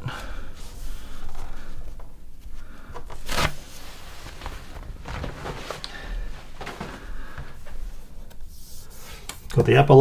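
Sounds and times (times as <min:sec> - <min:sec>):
paper rustling and crinkling: 0:03.0 - 0:07.8.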